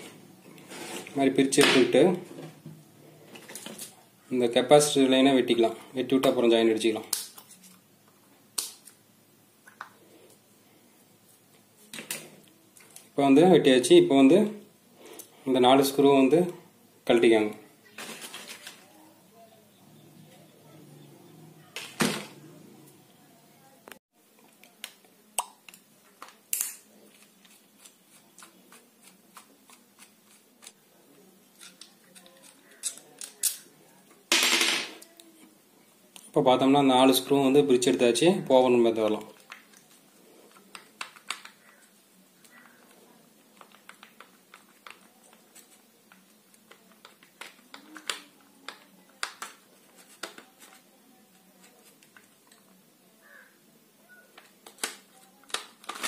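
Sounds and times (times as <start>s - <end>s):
screwdriver clicks and metal taps: 40.5s - 41.8s.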